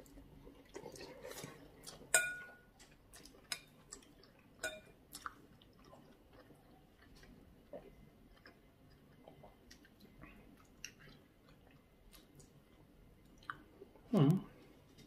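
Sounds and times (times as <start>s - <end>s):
cutlery clinking on plates: 2.1s - 2.6s, 4.6s - 4.9s.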